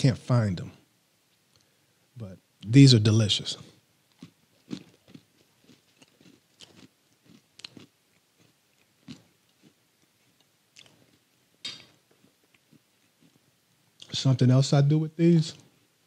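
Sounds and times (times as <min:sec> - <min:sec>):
cracker crunching: 0:04.1 - 0:13.4.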